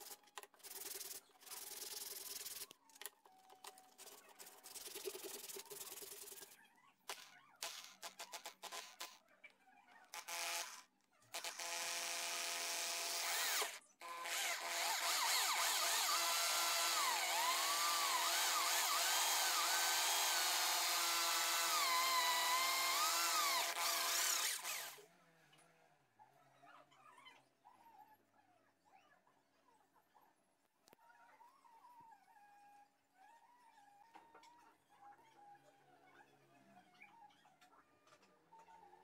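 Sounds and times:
electric drill whining into wood: 10.1s - 25.0s.

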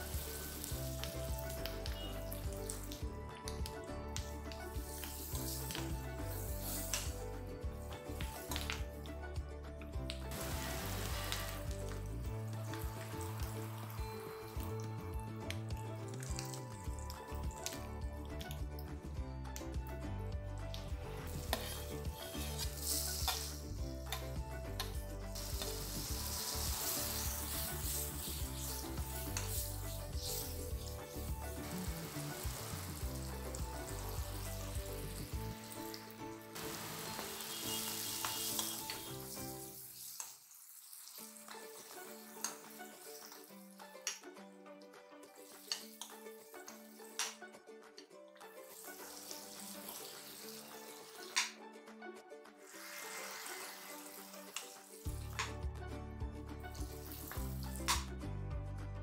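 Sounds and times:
vegetables sizzling in hot oil: 0.0s - 3.0s, 4.6s - 7.2s, 10.3s - 15.0s, 21.2s - 24.2s, 24.8s - 43.6s, 45.4s - 46.5s, 48.6s - 51.5s, 52.6s - 55.5s
background music with deep bass: 0.0s - 39.7s, 53.4s - 59.0s
steel spatula scraping a pan: 21.3s - 24.2s, 37.2s - 41.2s
steel spoon stirring: 21.3s - 24.2s.

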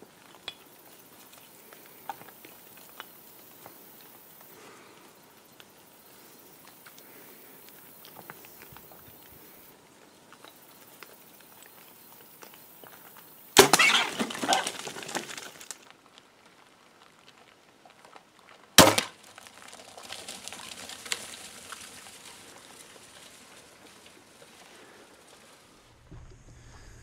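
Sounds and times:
hogs scrambling over rocky ground: 0.0s - 27.0s
sharp gunshots: 13.6s - 14.6s, 18.8s - 19.2s.

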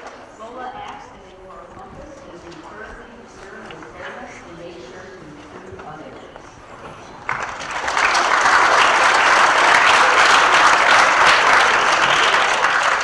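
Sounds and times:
children applauding: 7.1s - 13.0s.

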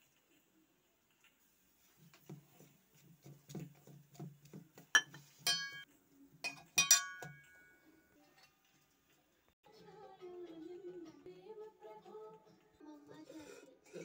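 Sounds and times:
steel kitchenware clinking: 4.8s - 8.7s.

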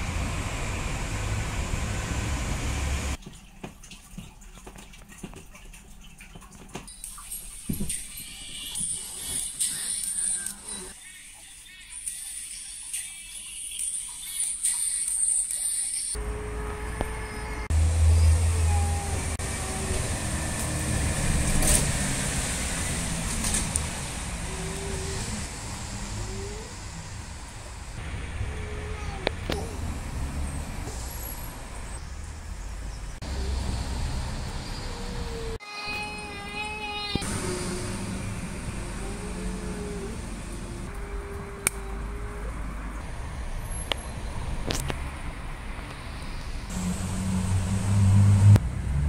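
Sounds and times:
distant road traffic: 0.0s - 3.2s, 16.2s - 49.0s
low rumble with hiss: 36.5s - 43.4s.

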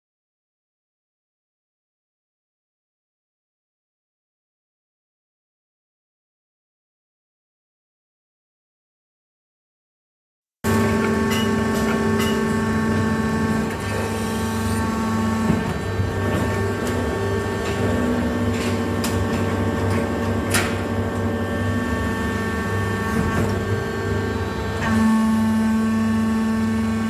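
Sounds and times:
electrical machinery hum: 10.6s - 27.0s.

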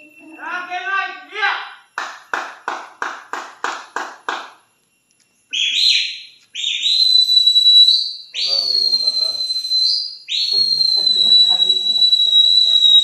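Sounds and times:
short sharp whistles: 4.6s - 13.0s
rising held whistle: 5.4s - 13.0s.

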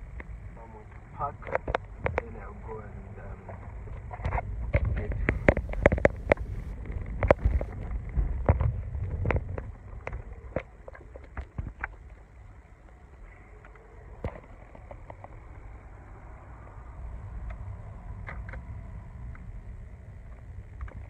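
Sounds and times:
car engine rumbling: 0.0s - 21.0s
sharp clicks and knocks: 0.9s - 2.4s, 3.9s - 12.0s.

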